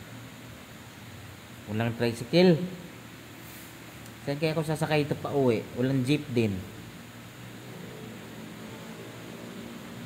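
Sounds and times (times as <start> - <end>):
faint low hum: 0.0 - 10.0
even hiss: 1.4 - 6.8.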